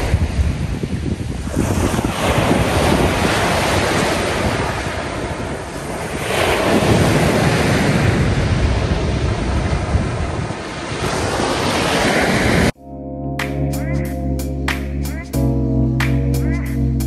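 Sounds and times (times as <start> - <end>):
wind buffeting microphone: 0.0 - 12.7
waves washing up a pebbly shore: 1.4 - 12.7.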